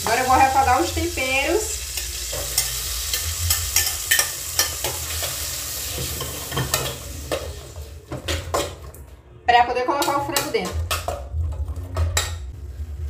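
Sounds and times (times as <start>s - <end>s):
vegetables sizzling in a pot: 0.0s - 8.6s.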